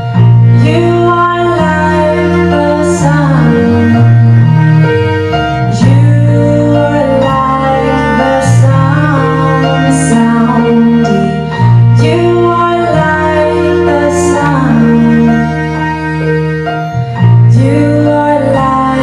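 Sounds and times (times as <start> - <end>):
cello: 0.0 - 19.0
electric bass: 0.0 - 19.0
piano: 0.0 - 19.0
woman singing slow song: 0.6 - 4.0, 5.7 - 15.6, 17.5 - 19.0.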